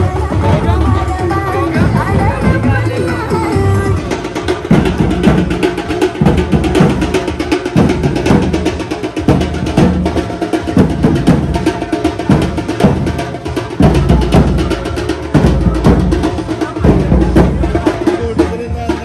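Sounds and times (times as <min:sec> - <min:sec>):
percussion-led drum music: 0:00.0 - 0:19.0.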